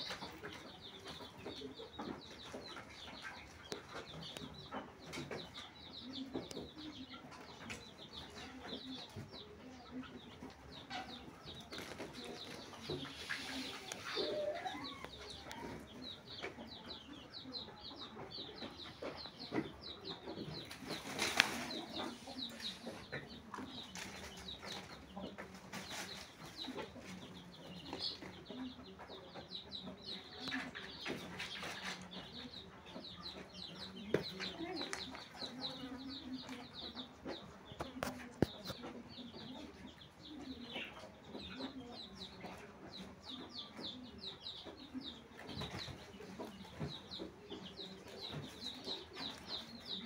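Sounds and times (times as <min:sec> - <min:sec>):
chickens clucking: 0:00.0 - 0:50.0
small birds chirping: 0:00.0 - 0:50.0.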